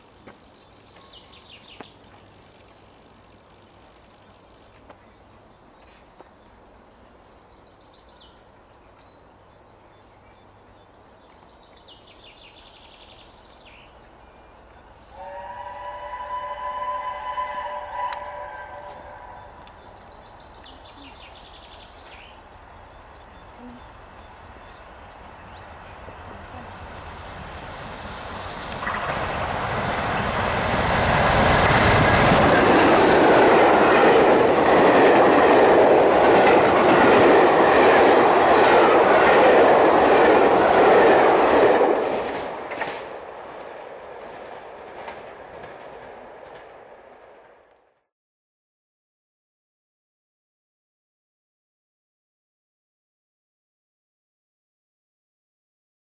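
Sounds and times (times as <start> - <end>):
steam locomotive passing: 12.1 - 47.6.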